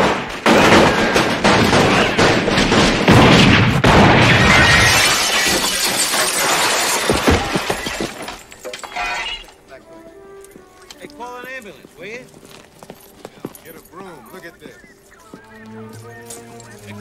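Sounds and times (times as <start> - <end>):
pistol gunshots: 0.0 - 5.0
glass pane shattering: 4.0 - 9.6.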